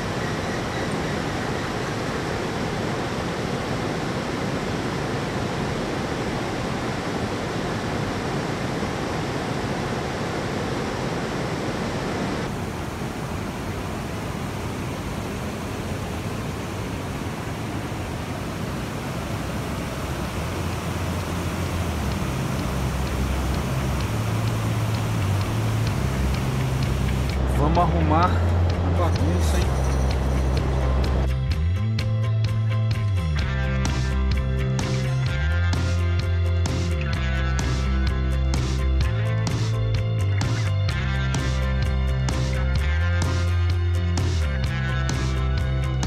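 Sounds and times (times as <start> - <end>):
river rapids rushing over rocks: 0.0 - 31.3
low hum: 0.0 - 31.8.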